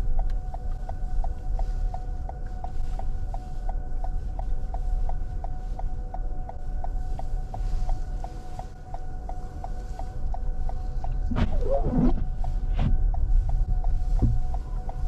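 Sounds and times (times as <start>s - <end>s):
car cabin low rumble: 7.7s - 15.0s
repeated electronic beep: 11.3s - 12.2s.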